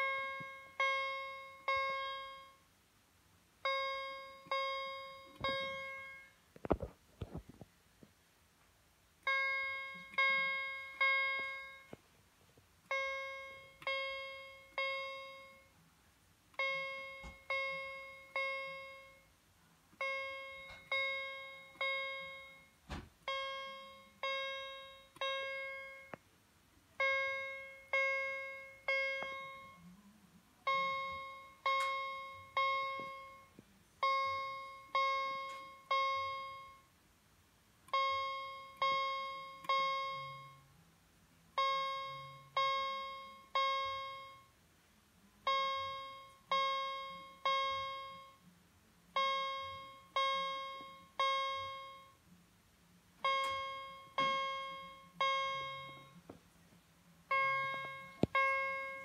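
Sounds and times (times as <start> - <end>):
fire alarm chime strikes: 0.0 - 2.6, 3.6 - 6.4, 9.3 - 12.0, 12.9 - 15.7, 16.6 - 19.3, 20.0 - 26.2, 27.0 - 29.8, 30.7 - 36.9, 37.9 - 40.6, 41.6 - 44.5, 45.5 - 48.4, 49.2 - 52.2, 53.2 - 56.2, 57.3 - 59.0.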